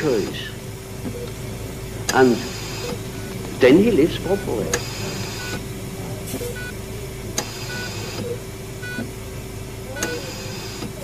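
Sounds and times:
low rumble and hum: 0.0s - 11.0s.

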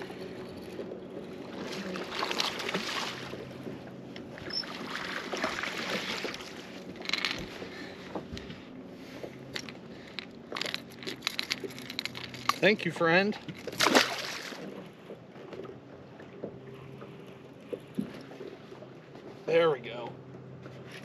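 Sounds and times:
fish thrashing and splashing: 0.0s - 12.6s, 13.3s - 14.9s
water lapping at boat hull: 0.0s - 21.0s.

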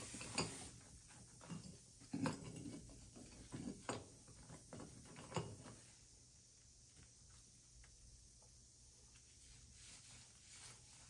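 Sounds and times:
hand tools clicking and knocking: 0.1s - 5.8s.

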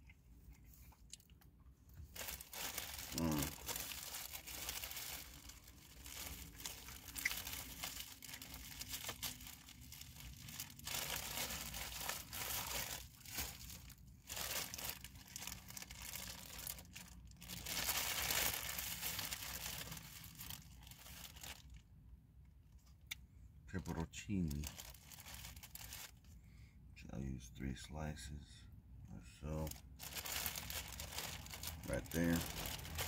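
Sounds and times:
plastic packaging crinkling: 2.0s - 21.8s, 24.5s - 26.2s, 29.6s - 33.0s.

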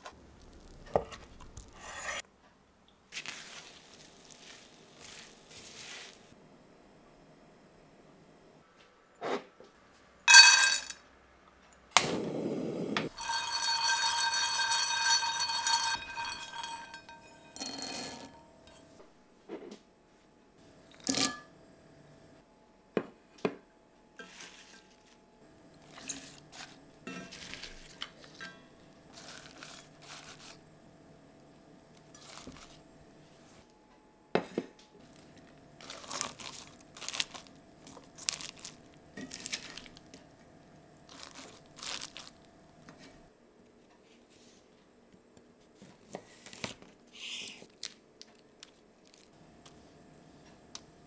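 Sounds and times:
bowls and ingredients handled: 3.1s - 6.4s, 10.3s - 11.0s, 13.1s - 19.0s, 24.2s - 30.6s, 31.9s - 33.7s, 34.4s - 43.3s
glass clinking: 10.3s - 11.0s, 13.1s - 18.9s
nuts pattering into glass jug: 10.3s - 11.0s, 13.1s - 17.3s, 35.8s - 40.0s, 41.1s - 42.4s.

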